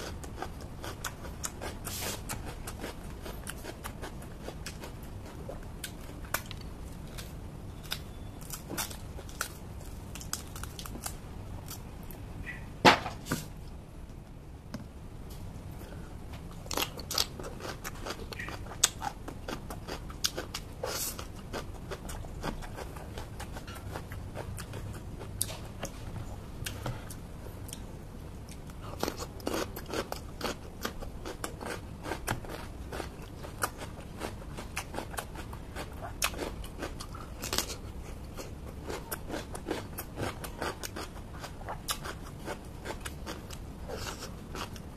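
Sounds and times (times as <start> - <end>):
crunching raw vegetables: 0.0 - 13.8.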